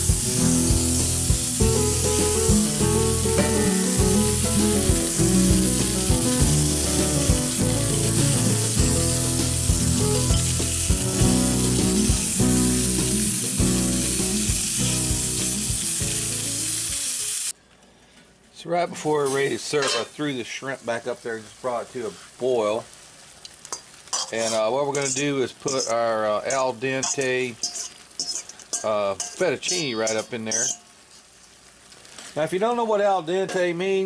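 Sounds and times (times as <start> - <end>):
background music with bass: 0.0 - 17.0
fish sizzling in a pan: 0.0 - 17.6, 19.2 - 32.5.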